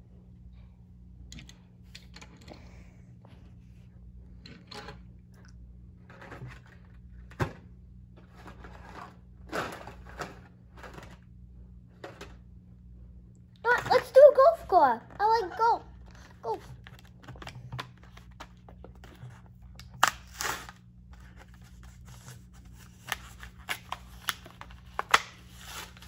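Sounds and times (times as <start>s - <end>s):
plastic and card rustling: 13.7s - 26.0s.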